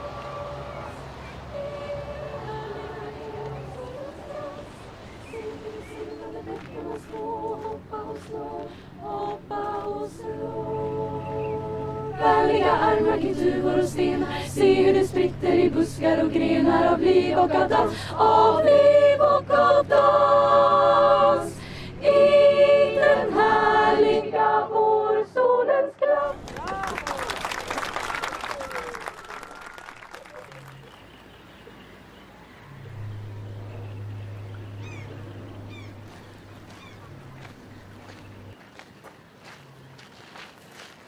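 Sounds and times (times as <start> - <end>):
choir of women singing: 0.0 - 26.5.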